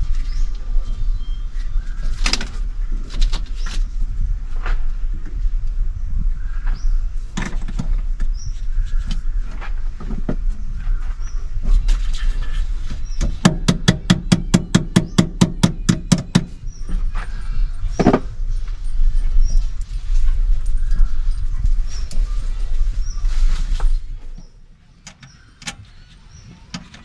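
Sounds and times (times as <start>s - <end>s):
tools knocking on metal: 13.3s - 16.6s.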